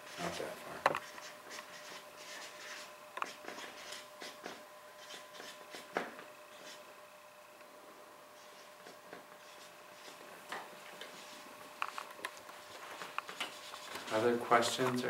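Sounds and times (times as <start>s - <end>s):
faint steady hum: 0.0s - 15.0s
paper rustling and scratching: 0.1s - 5.9s, 11.0s - 15.0s.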